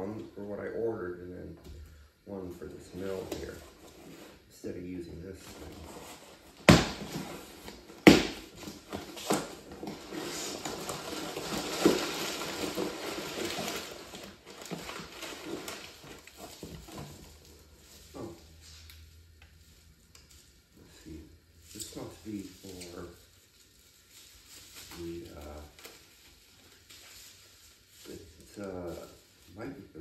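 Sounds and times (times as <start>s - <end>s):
packing paper crinkling: 5.5s - 18.8s, 21.6s - 30.0s.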